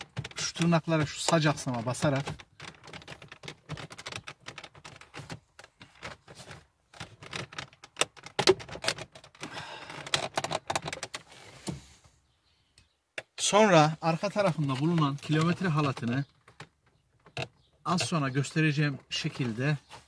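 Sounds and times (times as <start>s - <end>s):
plastic clicking and rattling: 0.0s - 11.3s, 14.3s - 18.2s.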